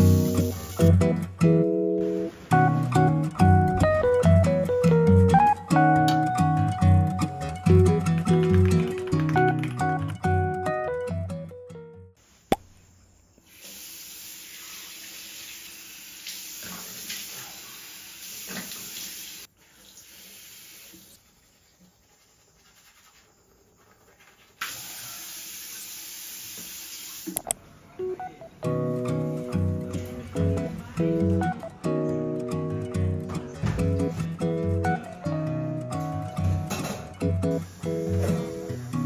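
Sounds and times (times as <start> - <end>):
tap water running into sink: 13.5 - 21.2, 24.6 - 27.4.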